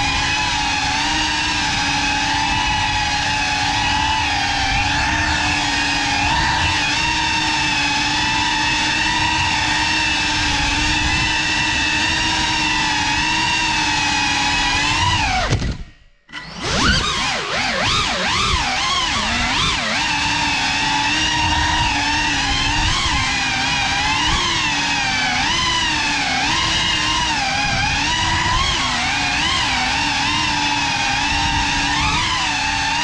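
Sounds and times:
drone motors whining: 0.0s - 33.0s.

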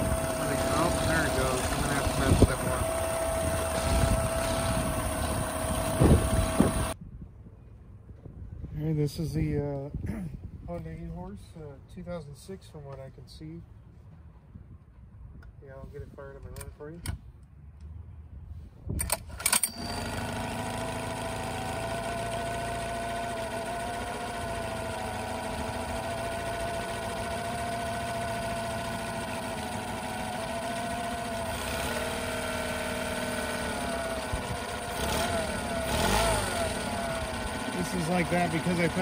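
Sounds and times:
outboard engine idling and revving: 0.0s - 7.0s, 19.7s - 39.0s.

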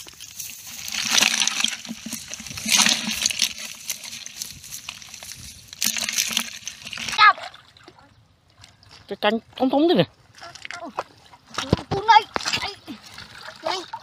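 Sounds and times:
fish and crabs flapping in bucket: 0.0s - 7.6s, 10.4s - 14.0s.

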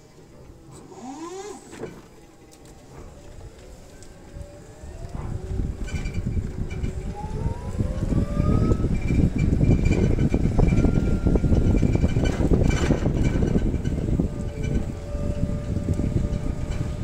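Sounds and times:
forklift engine whining: 0.0s - 17.0s.

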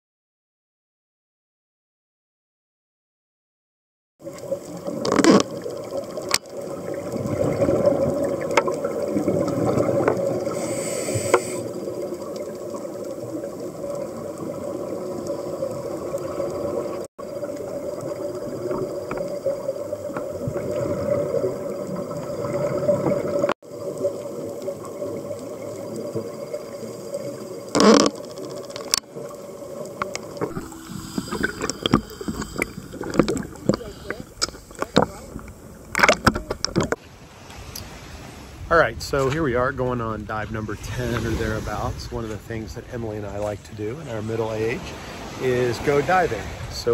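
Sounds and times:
muffled underwater rush: 4.2s - 46.9s
diver exhaled bubbles gushing: 4.3s - 28.4s, 29.1s - 37.0s.

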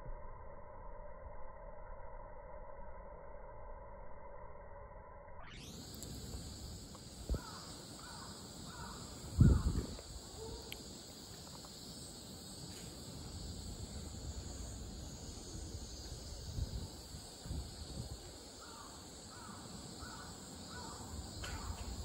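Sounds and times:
steady background hiss: 5.5s - 22.0s
bird calling: 7.3s - 10.9s.

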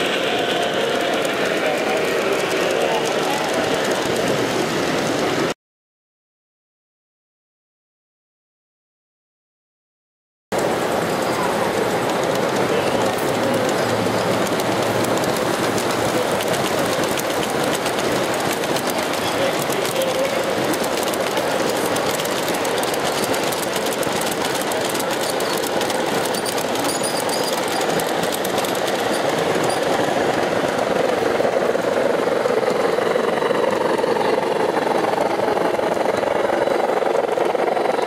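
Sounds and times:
model train wheels rattling: 0.4s - 5.5s, 10.6s - 37.8s.

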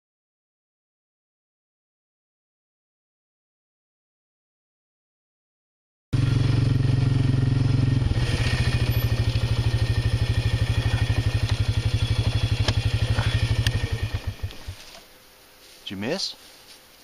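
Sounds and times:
vehicle engine idling: 6.2s - 14.8s.

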